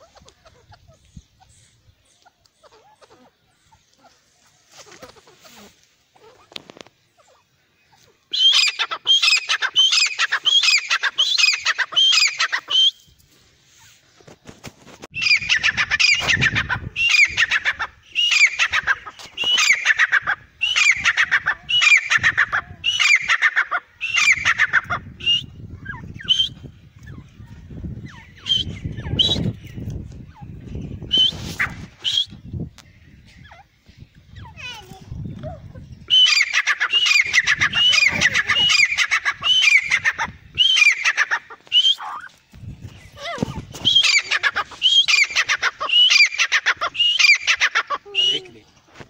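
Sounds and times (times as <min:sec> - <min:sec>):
bird calling high-pitched notes: 0:07.2 - 0:13.2, 0:15.2 - 0:27.4, 0:36.0 - 0:48.5.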